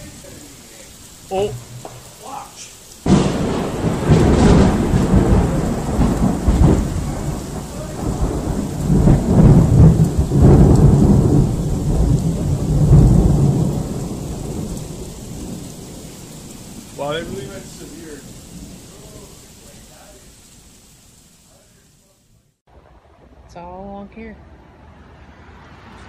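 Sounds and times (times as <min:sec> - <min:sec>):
thunder rumbling: 0:00.0 - 0:22.1
rain: 0:00.0 - 0:26.0.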